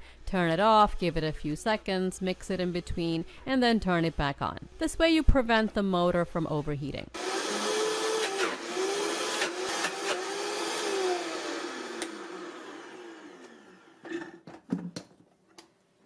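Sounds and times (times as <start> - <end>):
blender motor running: 7.2 - 14.4.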